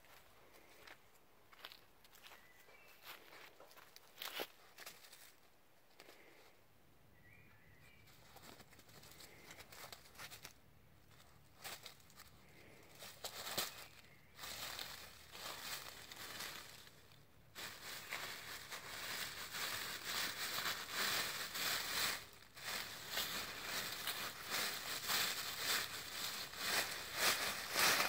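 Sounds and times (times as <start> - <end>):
animal rustling dry leaves: 8.0 - 28.0.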